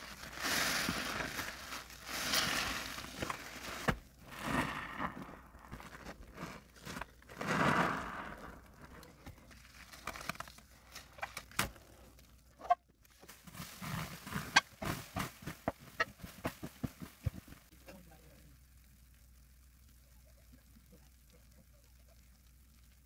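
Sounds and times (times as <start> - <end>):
foam crackling and popping: 0.0 - 23.0
small squishes and clicks: 8.6 - 13.4.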